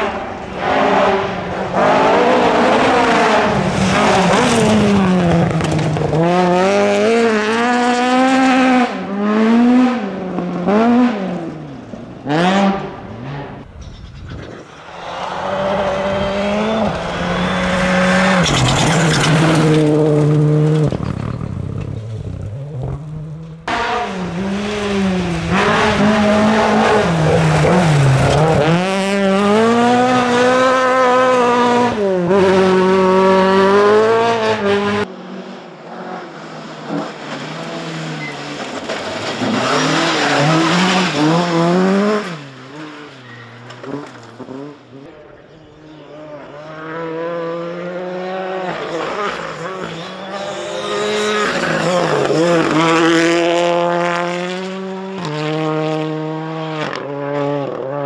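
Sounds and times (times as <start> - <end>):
rally car engine revving: 0.0 - 13.8, 14.4 - 58.0
tyres skidding on gravel: 3.5 - 6.6, 17.3 - 23.0, 36.9 - 44.7.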